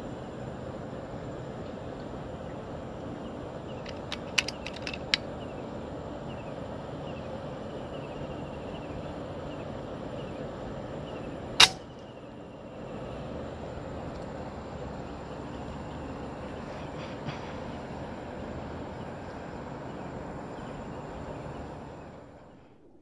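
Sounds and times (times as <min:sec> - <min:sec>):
outdoor hiss: 0:00.0 - 0:22.8
sharp clicks: 0:03.8 - 0:05.3, 0:11.6 - 0:12.0
rifle shot: 0:11.6 - 0:11.9.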